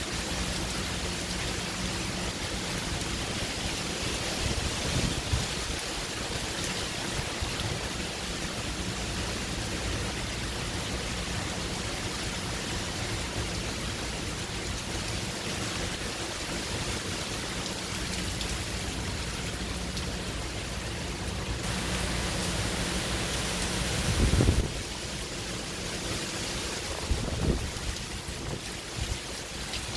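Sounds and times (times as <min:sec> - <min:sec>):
heavy rain: 0:00.0 - 0:29.9
wind gusts buffeting microphone: 0:24.0 - 0:24.9, 0:26.8 - 0:28.7.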